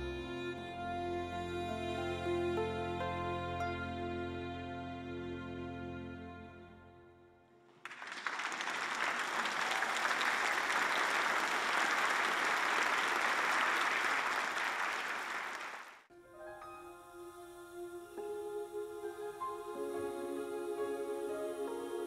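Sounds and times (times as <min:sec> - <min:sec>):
string orchestra chord: 0:00.0 - 0:07.4
audience applauding: 0:07.8 - 0:16.1.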